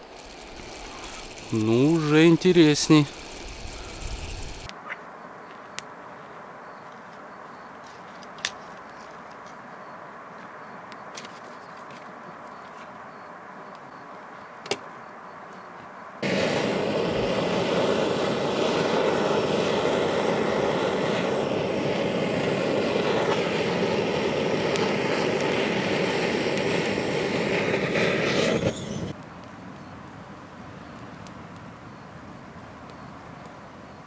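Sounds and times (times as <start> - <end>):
gas torch hissing: 0.0 - 4.7, 16.2 - 29.2.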